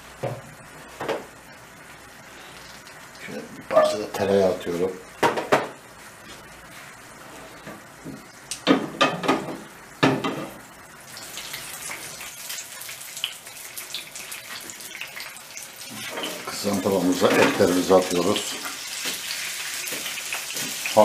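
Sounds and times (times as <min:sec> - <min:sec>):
butter sizzling in frying pan: 0:09.9 - 0:21.0.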